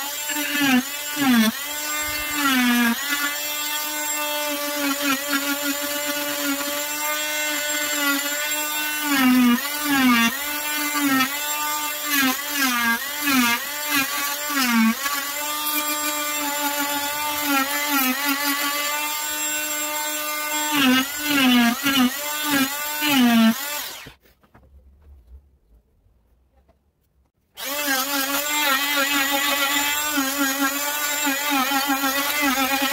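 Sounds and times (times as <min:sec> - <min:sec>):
multi-tool whining cutting wood: 0:00.0 - 0:24.2, 0:27.5 - 0:32.9.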